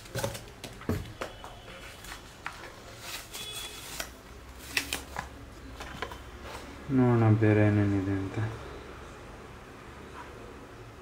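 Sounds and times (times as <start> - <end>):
packaging rustling: 0.0 - 6.7.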